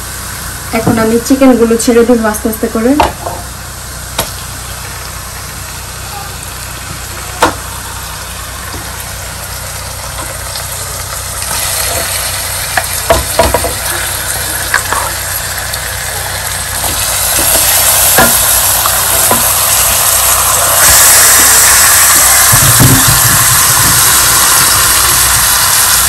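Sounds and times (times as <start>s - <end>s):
chicken sizzling in oil: 3.5s - 26.0s
wooden spatula knocking pan: 13.1s - 13.8s, 18.2s - 18.4s.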